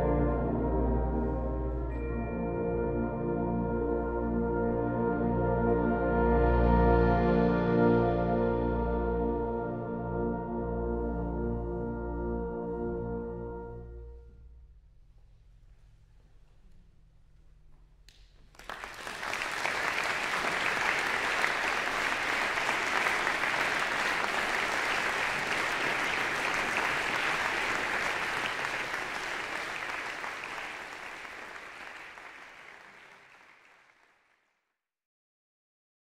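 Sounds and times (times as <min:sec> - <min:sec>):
audience applauding: 0:18.1 - 0:34.5.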